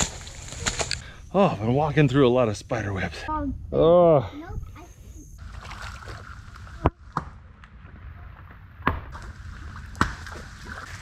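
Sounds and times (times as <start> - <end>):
water sloshing: 5.4 - 8.4, 9.1 - 11.0.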